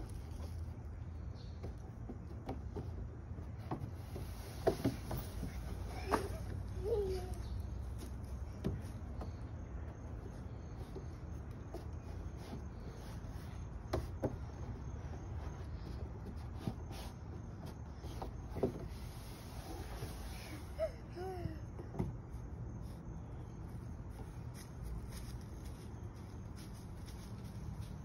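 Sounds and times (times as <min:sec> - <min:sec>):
hands and feet knocking on plastic slide: 0:01.6 - 0:07.1.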